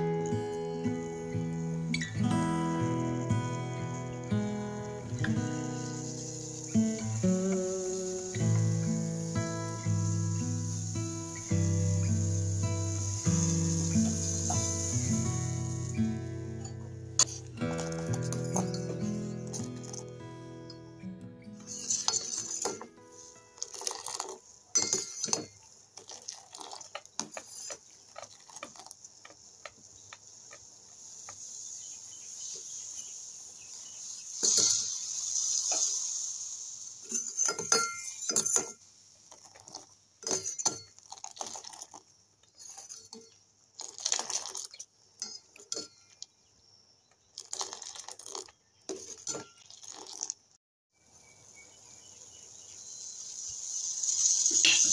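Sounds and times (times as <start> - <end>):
liquid splashing pours: 0.1 - 20.2, 21.5 - 29.8, 33.9 - 37.8, 39.3 - 43.1, 43.8 - 44.9, 47.4 - 50.4, 53.3 - 54.9
ladle clinking on metal pot: 24.7 - 25.6.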